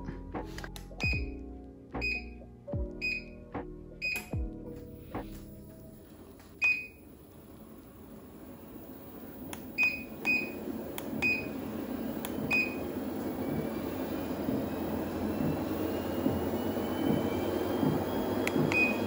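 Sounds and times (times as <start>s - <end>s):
treadmill motor hum: 4.8s - 19.0s.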